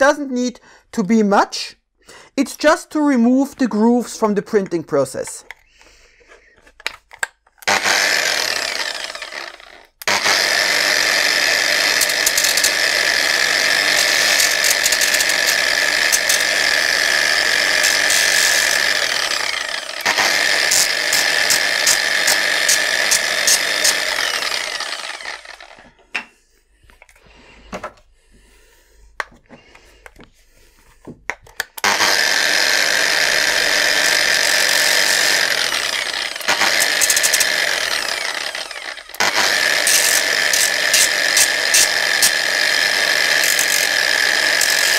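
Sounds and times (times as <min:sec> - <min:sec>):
angle grinder sanding plastic: 0:07.6 - 0:26.0, 0:31.6 - 0:44.9.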